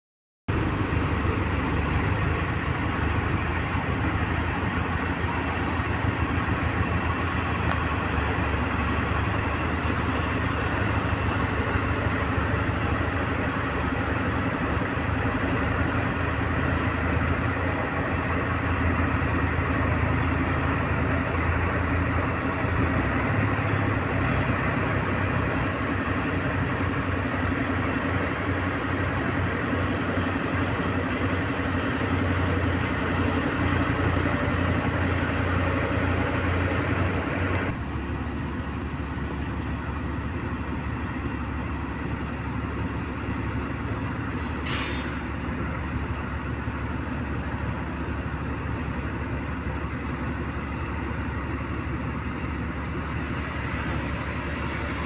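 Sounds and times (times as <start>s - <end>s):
diesel engine running: 0.5s - 55.0s.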